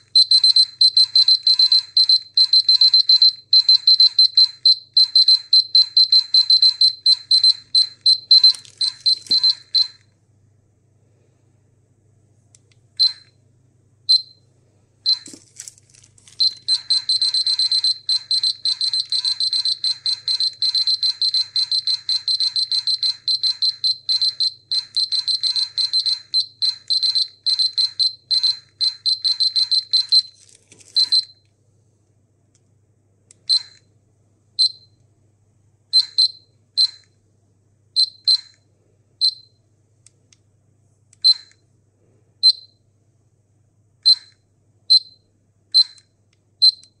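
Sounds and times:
high-pitched dosimeter beeping: 0.0 - 10.1, 13.0 - 13.4, 14.1 - 14.4, 15.1 - 15.4, 16.3 - 30.4, 31.0 - 31.4, 33.4 - 33.9, 34.6 - 35.0, 35.9 - 37.2, 38.0 - 39.6, 42.4 - 42.8, 44.0 - 47.0.

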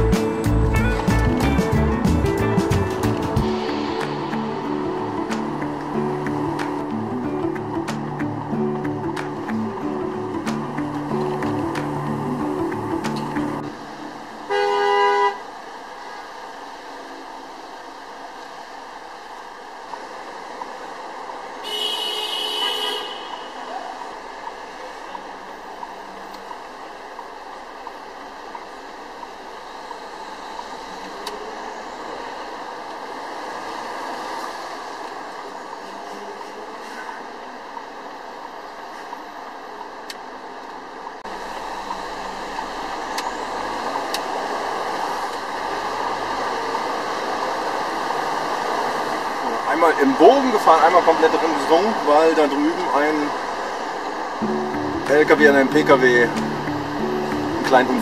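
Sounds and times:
traffic noise: 0.0 - 58.0
truck engine and road noise: 0.0 - 58.0
vehicle horn blast: 14.4 - 15.5, 21.6 - 23.8.

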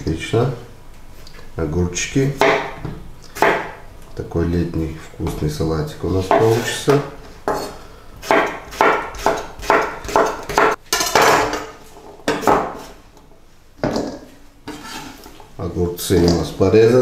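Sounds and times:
knife chopping on wooden board: 2.4 - 3.8, 6.3 - 6.7, 7.5 - 11.6, 12.3 - 12.9.

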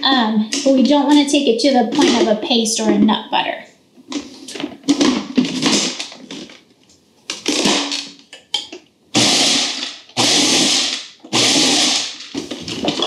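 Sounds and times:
food processor chopping nuts: 9.2 - 12.3.

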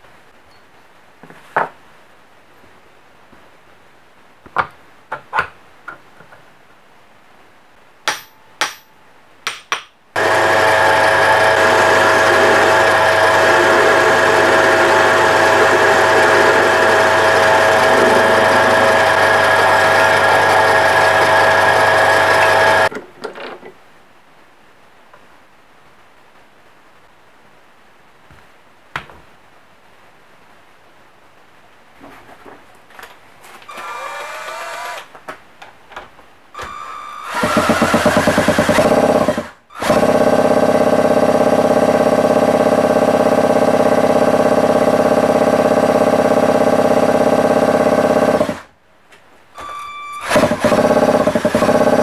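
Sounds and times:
metal lathe whining: 10.2 - 22.9.

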